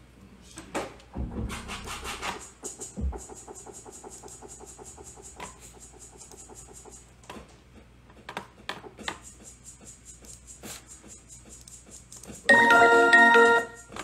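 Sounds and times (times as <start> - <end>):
hi-hat ticks: 2.2 - 7.2, 9.0 - 12.5.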